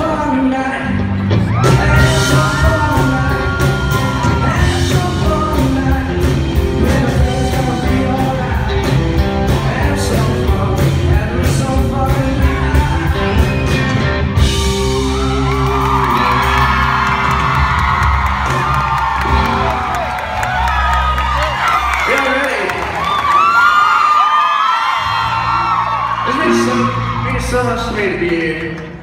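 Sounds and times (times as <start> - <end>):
person singing lead vocal: 0.0 - 17.3
electric bass: 0.0 - 21.9
steady drum beat: 1.4 - 20.2.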